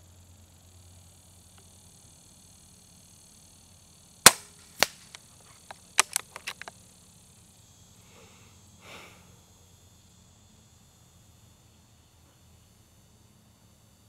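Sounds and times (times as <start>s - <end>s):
air rifle shot crack: 4.3s - 5.2s
smaller snap: 4.3s - 5.2s
small clicks: 4.3s - 6.8s.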